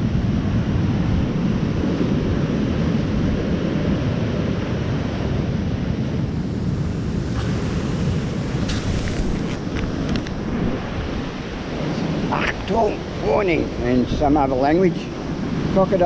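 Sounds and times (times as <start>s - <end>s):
wind buffeting microphone: 0.0s - 16.0s
camera handling clicks: 8.7s - 10.4s.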